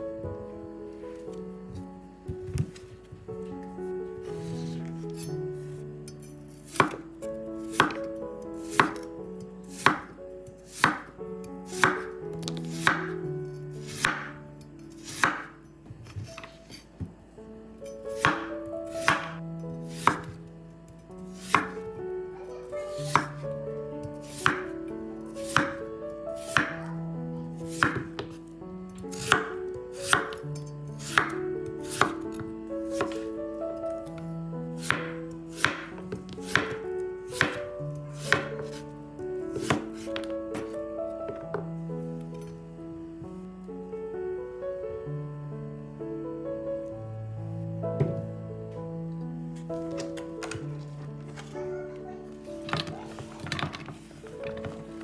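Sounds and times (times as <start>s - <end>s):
soft background music: 0.0s - 55.0s
knife chopping on wooden board: 6.7s - 7.0s, 7.7s - 8.0s, 8.7s - 9.1s, 9.8s - 10.1s, 10.7s - 11.1s, 11.7s - 13.1s, 13.9s - 14.3s, 15.0s - 17.1s, 18.2s - 20.4s, 21.4s - 21.8s, 23.1s - 23.4s, 24.2s - 24.7s, 25.5s - 25.8s, 26.4s - 26.8s, 27.7s - 28.4s, 29.2s - 30.4s, 31.0s - 32.2s, 33.0s - 33.3s, 34.8s - 38.8s, 39.6s - 41.5s.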